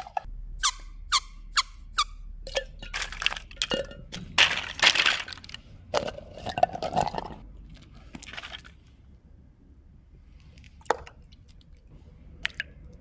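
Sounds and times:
plastic toys clinking against glass: 0:02.5 - 0:07.4
plastic blocks clattering: 0:02.6 - 0:08.9.

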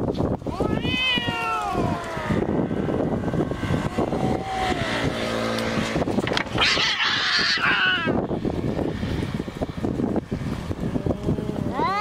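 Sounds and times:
cat growling yowl: 0:00.5 - 0:02.8, 0:06.6 - 0:08.2
cat hissing screech: 0:00.6 - 0:02.4, 0:06.6 - 0:08.2
steady low rumble: 0:01.6 - 0:11.8.

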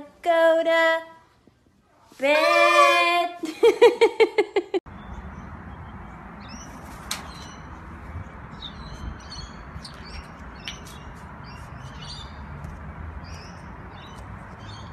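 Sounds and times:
bird chirping: 0:04.9 - 0:14.9.

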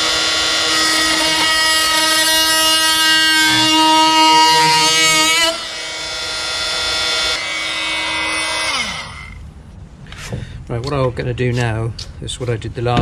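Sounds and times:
oscillating tool buzzing whine: 0:00.0 - 0:09.4
tool winding down: 0:00.0 - 0:09.4.

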